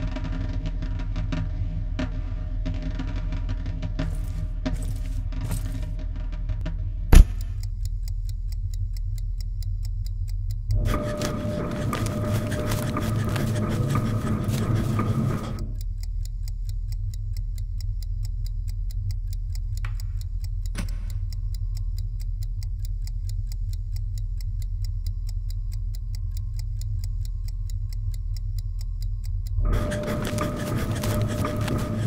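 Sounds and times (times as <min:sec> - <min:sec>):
sharp knock: 0:07.1 - 0:07.6
chess clock ticking: 0:07.1 - 0:32.0.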